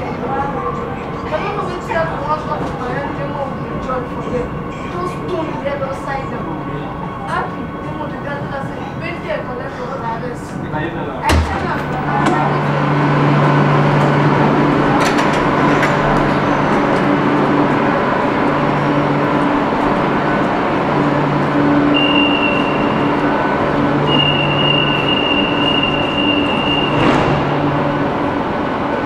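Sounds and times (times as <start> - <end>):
train humming at platform: 0.0 - 29.0
short loud whoosh: 26.7 - 28.0.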